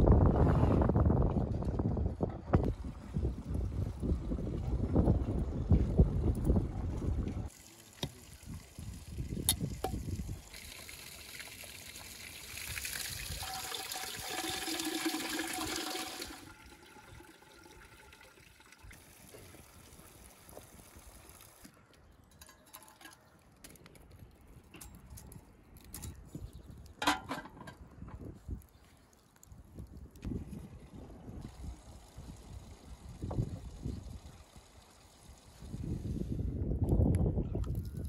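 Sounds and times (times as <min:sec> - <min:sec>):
water pouring into vessel: 0:07.5 - 0:21.6.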